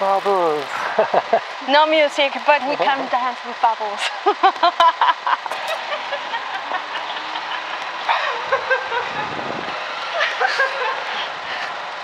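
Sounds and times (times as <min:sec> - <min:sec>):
people laughing: 0:00.8 - 0:01.4, 0:04.1 - 0:09.4, 0:10.1 - 0:11.4.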